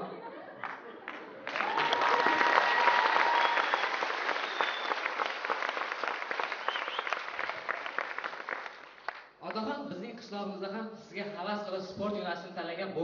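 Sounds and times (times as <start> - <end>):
audience applauding: 0.6 - 9.3.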